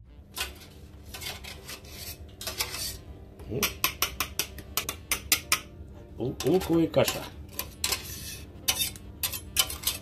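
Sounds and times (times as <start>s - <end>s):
knife scraping metal grater: 0.4s - 3.0s, 6.4s - 10.0s.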